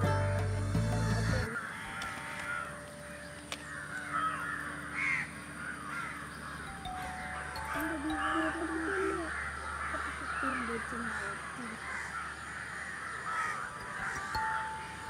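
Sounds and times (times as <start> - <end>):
background music: 0.0 - 10.0, 13.4 - 15.0
crows cawing: 1.3 - 15.0.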